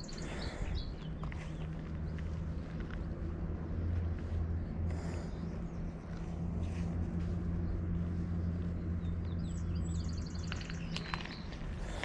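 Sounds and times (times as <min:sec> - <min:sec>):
bird chirping: 0:00.0 - 0:02.4, 0:07.5 - 0:12.0
low mechanical hum: 0:00.0 - 0:12.0.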